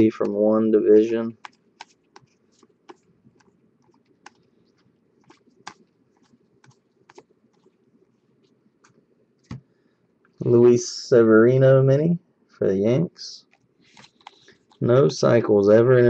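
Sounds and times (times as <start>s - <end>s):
cards clicking and sliding: 1.4s - 4.5s, 13.5s - 14.8s.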